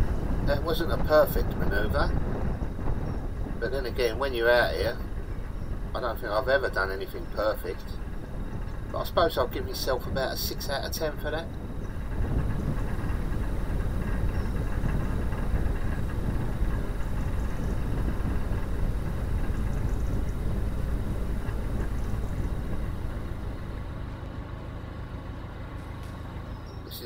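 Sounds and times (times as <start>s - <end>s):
diesel engine idling: 0.0s - 27.0s.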